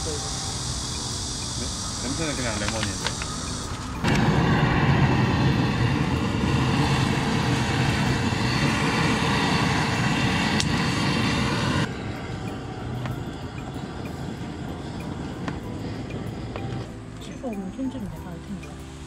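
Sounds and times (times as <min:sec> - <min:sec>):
gas torch flame rushing: 0:00.0 - 0:11.9.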